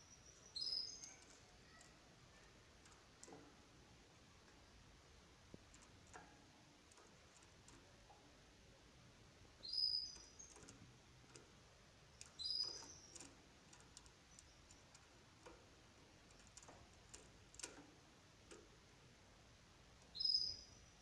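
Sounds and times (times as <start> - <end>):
canary chirping: 0.0 - 3.7, 9.4 - 18.7, 19.9 - 21.0
faint light clicks: 1.0 - 3.7, 5.5 - 8.3, 9.9 - 18.8.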